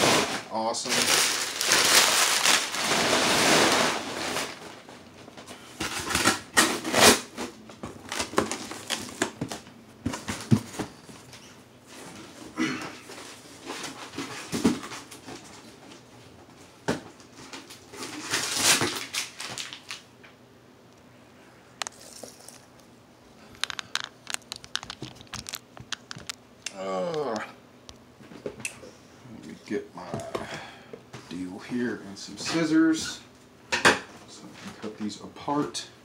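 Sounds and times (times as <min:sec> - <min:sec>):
packing material crinkling: 0:00.1 - 0:05.0, 0:06.0 - 0:10.5, 0:17.4 - 0:20.1, 0:23.5 - 0:26.4.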